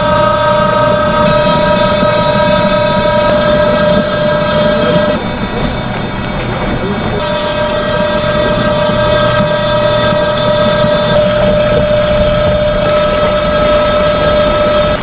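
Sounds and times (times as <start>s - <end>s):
drum machine motor whine: 0.0s - 15.0s
fish churning in spinning drum: 0.0s - 15.0s
hose water hissing and splashing: 7.2s - 15.0s.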